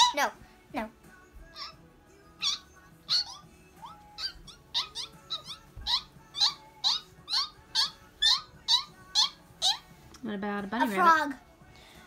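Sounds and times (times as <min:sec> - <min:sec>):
child squeaking like a guinea pig: 0:00.0 - 0:00.3, 0:01.5 - 0:01.8, 0:02.4 - 0:09.9.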